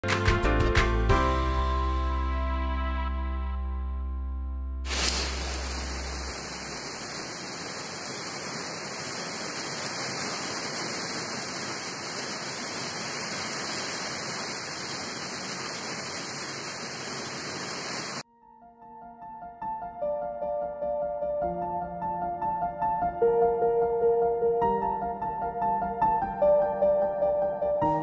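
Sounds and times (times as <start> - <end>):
heavy rain hissing: 4.9 - 18.2.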